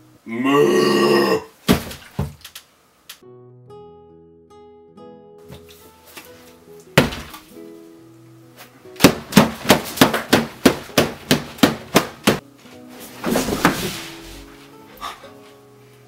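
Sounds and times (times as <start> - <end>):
guitar music: 3.2 - 9.0, 12.1 - 13.2, 13.9 - 16.0
hands thumping on table: 7.0 - 7.5.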